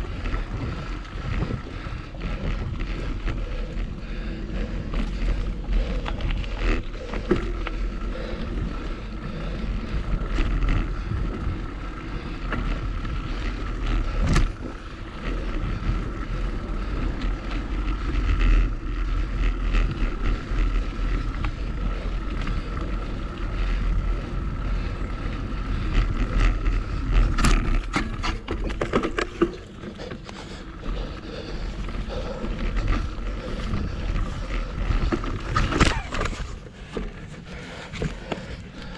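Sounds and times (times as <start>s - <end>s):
bike rattling and tyres crunching: 0.0s - 38.9s
wind buffeting microphone: 0.0s - 38.9s
bike knocking over bumps: 13.7s - 14.8s, 25.8s - 30.3s, 32.7s - 37.1s.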